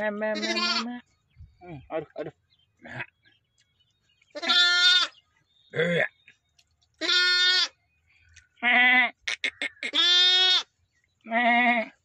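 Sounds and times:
lambs bleating: 0.4s - 0.9s, 4.4s - 5.2s, 7.0s - 7.8s, 8.6s - 10.7s, 11.3s - 12.0s.

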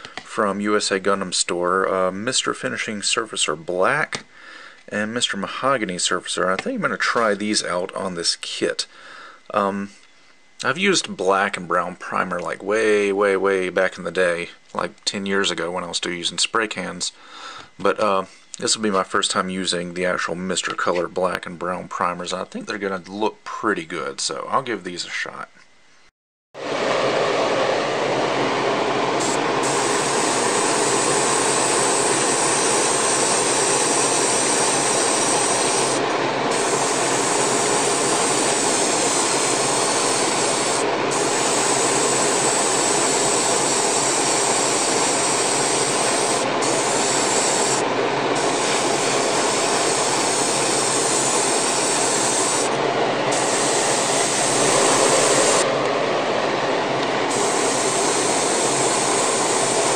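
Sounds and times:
airbrush spraying hiss: 29.2s - 55.7s, 57.3s - 59.9s.

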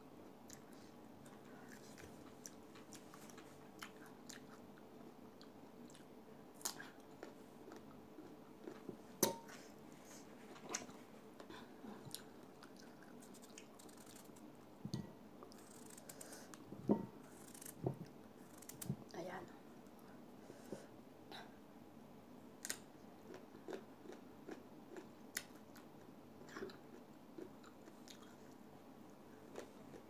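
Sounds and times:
person chewing: 0.5s - 8.9s, 10.7s - 14.4s, 22.6s - 28.6s.

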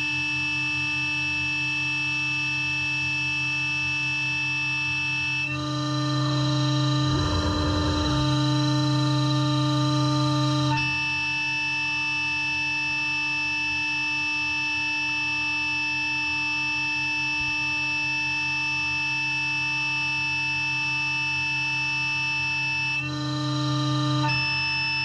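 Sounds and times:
router spindle whine: 5.6s - 10.8s.

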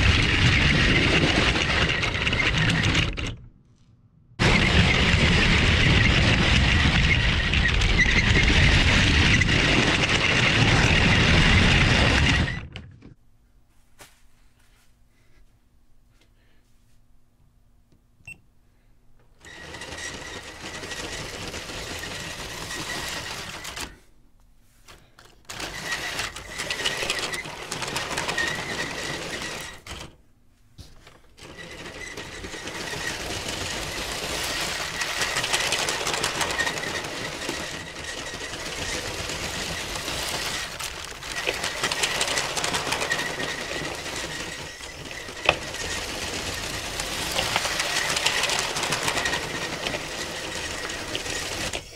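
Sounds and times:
toy train motor whirring: 0.0s - 3.3s, 4.4s - 12.6s, 19.4s - 24.0s, 25.5s - 30.1s, 31.4s - 51.9s.

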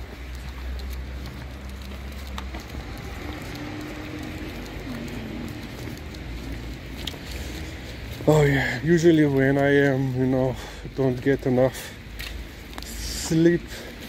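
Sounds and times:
rain on wet pavement: 0.0s - 14.0s.

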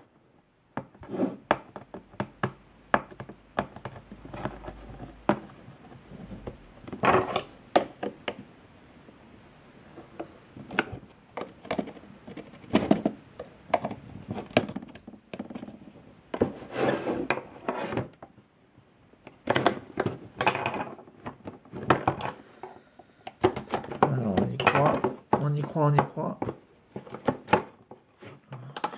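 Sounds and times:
cardboard scraping: 1.0s - 1.5s, 3.9s - 7.6s, 14.0s - 18.2s.

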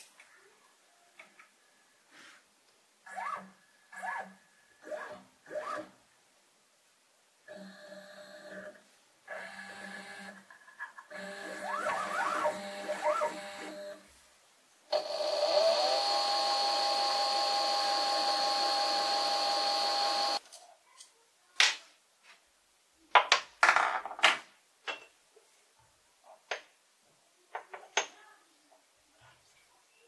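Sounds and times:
lathe motor whining: 11.1s - 14.0s, 14.9s - 20.4s
lathe spindle spinning up: 15.0s - 20.4s.

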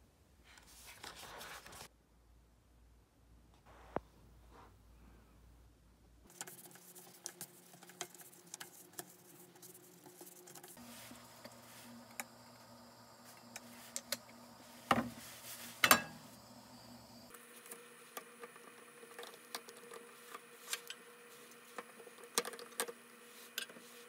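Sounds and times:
steady low hum: 3.6s - 24.0s.

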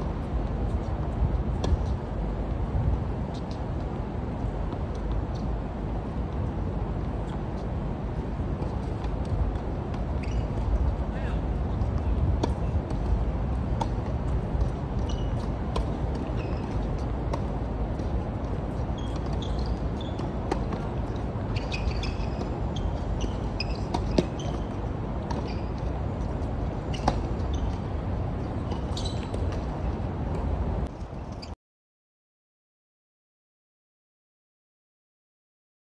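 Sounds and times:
tennis balls struck and bouncing: 11.8s - 30.6s.

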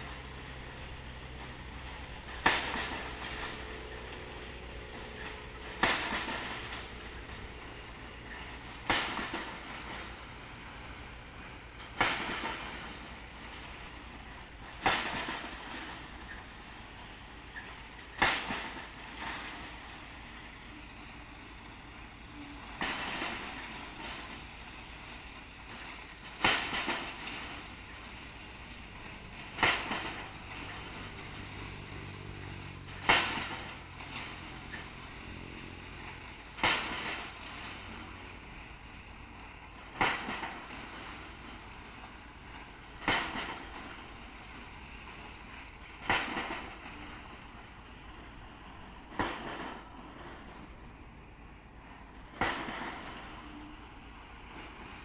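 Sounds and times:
winch engine running low: 0.0s - 55.0s
drop hammer striking concrete pile: 52.4s - 53.2s.

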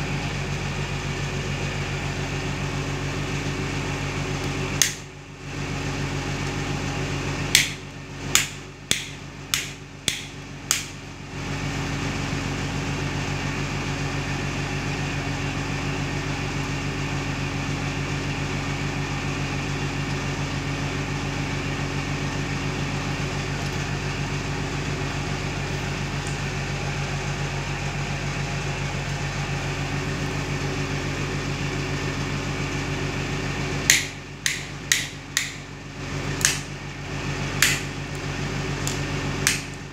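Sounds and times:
steady background hum: 0.0s - 15.3s, 18.7s - 39.9s
rocker switch clicking: 4.8s - 5.0s, 7.5s - 7.8s, 8.4s - 11.0s, 33.9s - 35.6s, 37.6s - 37.9s, 38.8s - 39.7s.

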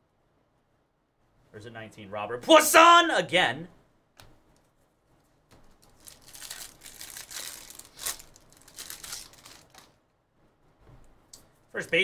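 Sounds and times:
foil wrapper crinkling and tearing: 5.6s - 10.0s.

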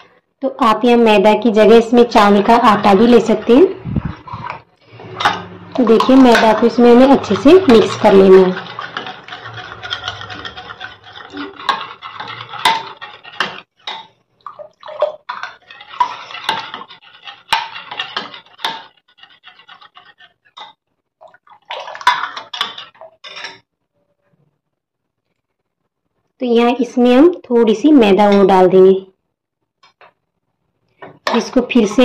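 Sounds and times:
ladle scraping glass bowl: 1.6s - 23.7s.

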